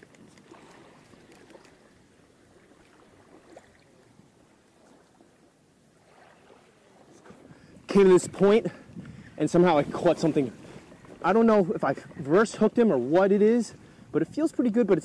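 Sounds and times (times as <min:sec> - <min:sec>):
small ticks: 0:00.0 - 0:01.8
light water noise: 0:00.0 - 0:15.0
wind noise: 0:07.2 - 0:15.0.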